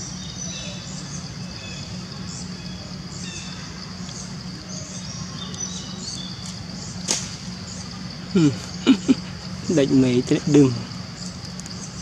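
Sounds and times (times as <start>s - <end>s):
birds chirping: 0.0s - 12.0s
insect drone: 0.0s - 12.0s
person speaking: 8.4s - 10.9s.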